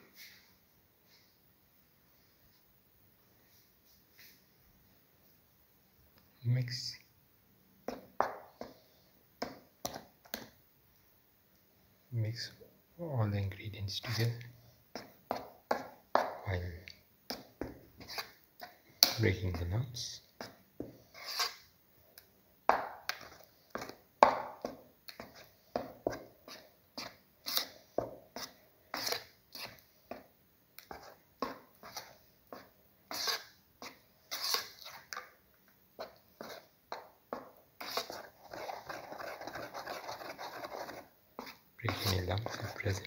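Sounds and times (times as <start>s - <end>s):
spoon stirring thick batter: 7.8s - 10.6s, 13.3s - 43.0s.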